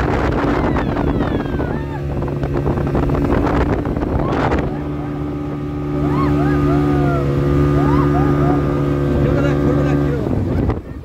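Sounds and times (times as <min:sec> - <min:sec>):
speedboat engine running: 0:00.0 - 0:11.0
wind buffeting microphone: 0:00.0 - 0:11.0
high warbling calls: 0:04.1 - 0:09.0.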